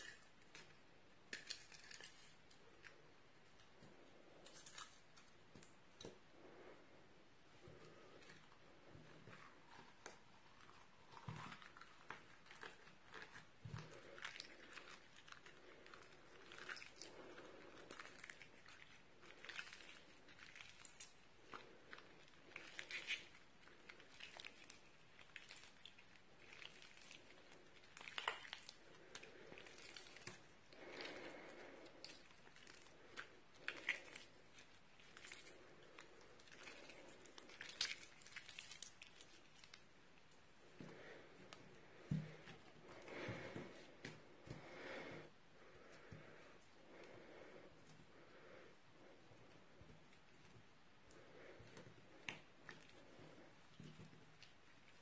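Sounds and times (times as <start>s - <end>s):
slime squishing: 7.6s - 45.0s, 45.7s - 55.0s
slime crackling and popping: 9.6s - 30.5s, 31.9s - 39.9s.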